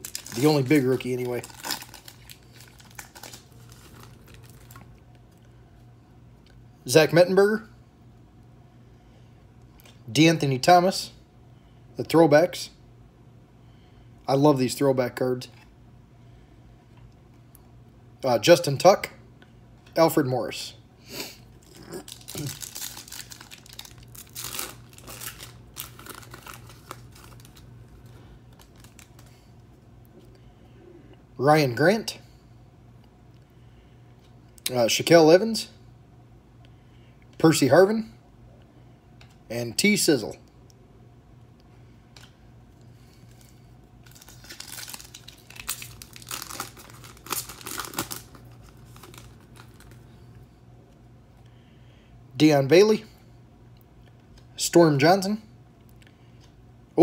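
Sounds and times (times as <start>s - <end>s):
foil wrapper tearing and crinkling: 0.0s - 4.9s, 21.8s - 29.3s, 43.3s - 50.0s.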